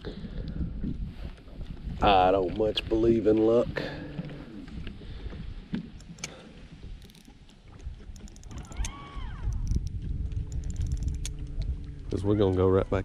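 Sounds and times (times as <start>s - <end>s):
lake water against boat: 0.0s - 13.0s
wind rumble: 0.0s - 13.0s
fishing reel clicks: 7.0s - 7.3s, 8.1s - 11.6s.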